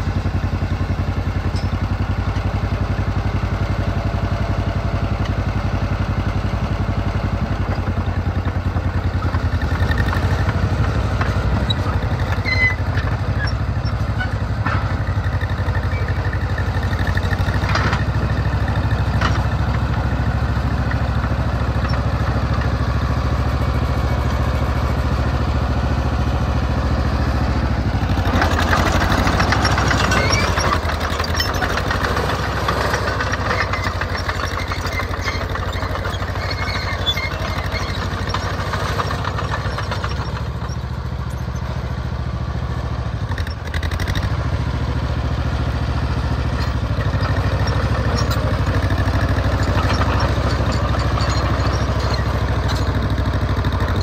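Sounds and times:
crawler tractor engine running: 0:00.0 - 0:54.0.

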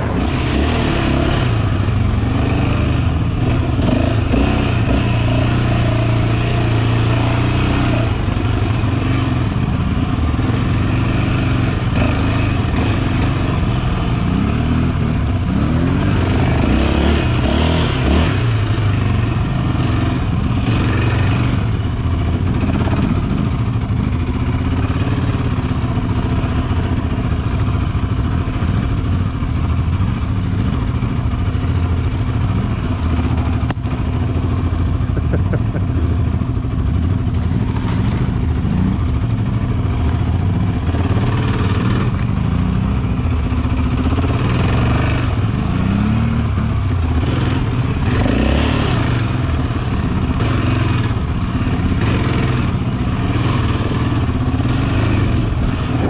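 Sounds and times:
quad bike engine revving: 0:00.0 - 0:56.0.

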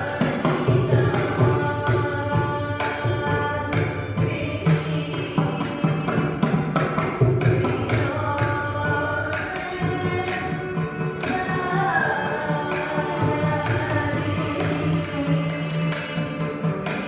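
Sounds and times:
bowed violin: 0:00.0 - 0:17.0
mridangam drum strokes: 0:00.0 - 0:17.0
woman singing: 0:00.0 - 0:17.0.

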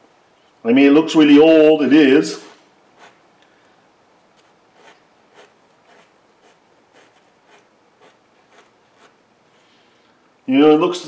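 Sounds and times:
hand file rasping: 0:04.4 - 0:09.2.

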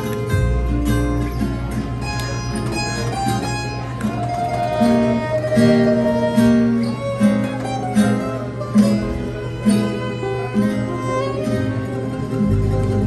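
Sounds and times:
acoustic guitar chords: 0:00.0 - 0:13.0
fiddle melody: 0:00.0 - 0:13.0
upright bass: 0:00.0 - 0:13.0.

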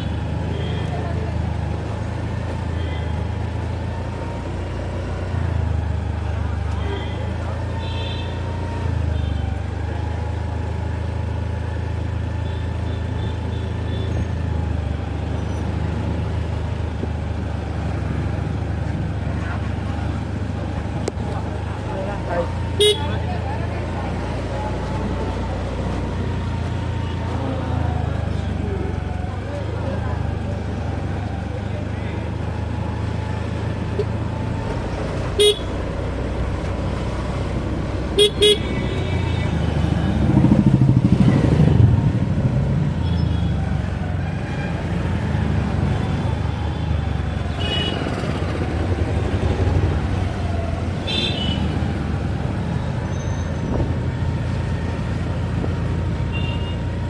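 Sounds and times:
car engine and road rumble: 0:00.0 - 0:57.0
car horn toots: 0:35.4 - 0:35.6.

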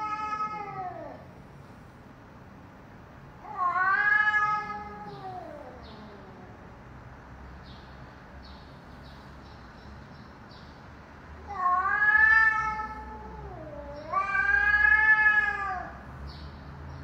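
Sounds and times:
cats yowling: 0:00.0 - 0:01.3, 0:03.4 - 0:06.6, 0:11.4 - 0:16.1.

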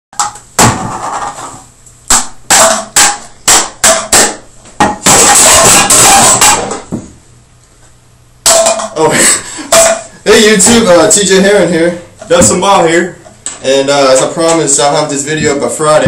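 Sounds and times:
sharp smacks on tin lids: 0:02.1 - 0:06.8.

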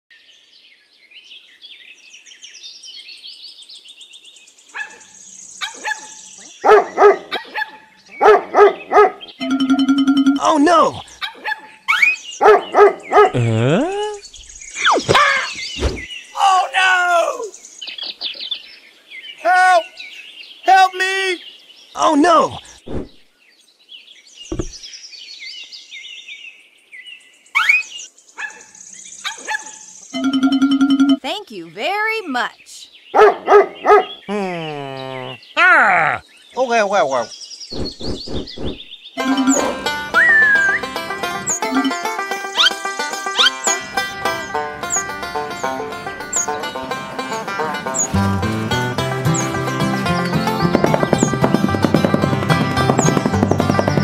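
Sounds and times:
birds chirping: 0:00.3 - 0:54.0
dog barking: 0:04.8 - 0:05.0, 0:05.6 - 0:09.3, 0:11.2 - 0:11.7, 0:12.4 - 0:13.4, 0:33.2 - 0:34.2
short thump: 0:22.9 - 0:23.2, 0:24.5 - 0:24.8.

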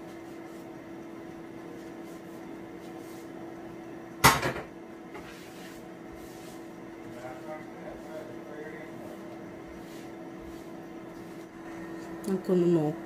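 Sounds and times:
steady hum: 0:00.0 - 0:13.0
sharp knocks on kitchen counter: 0:04.2 - 0:04.7.

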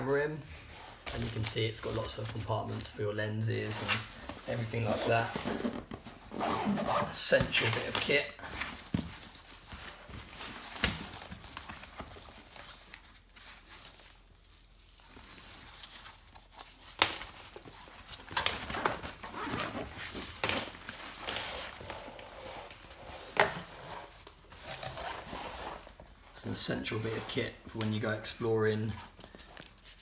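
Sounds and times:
zipper opening: 0:04.8 - 0:07.2.

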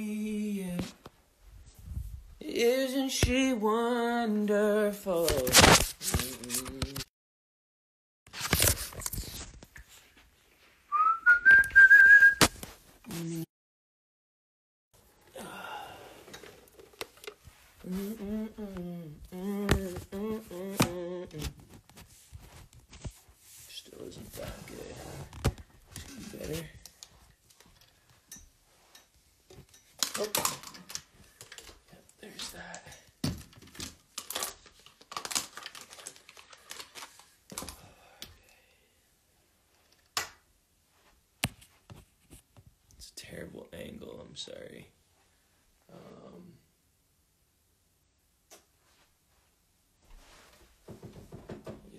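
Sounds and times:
person humming a tune: 0:13.1 - 0:13.5, 0:17.8 - 0:21.6.

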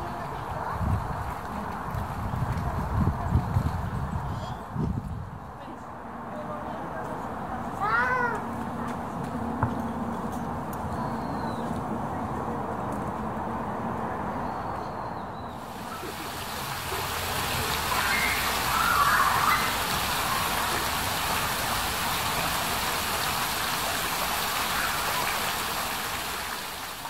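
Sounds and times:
running water rushing: 0:15.6 - 0:27.0.

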